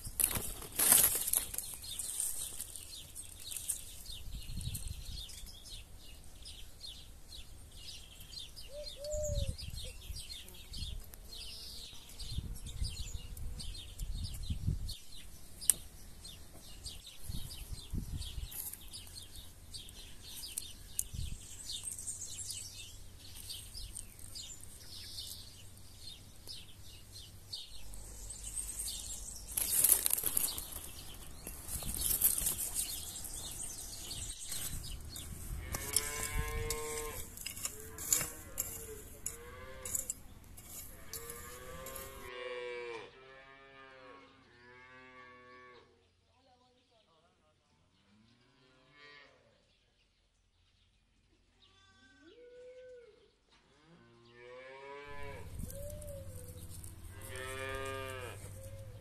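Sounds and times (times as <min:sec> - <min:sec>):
small birds chirping: 0:00.0 - 0:42.3, 0:54.2 - 0:59.0.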